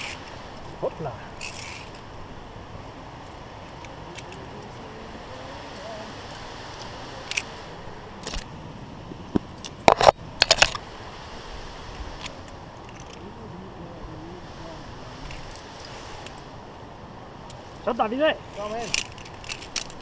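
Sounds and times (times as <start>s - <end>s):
carabiners clinking on steel cable: 0.0s - 0.3s, 1.4s - 2.0s, 18.5s - 20.0s.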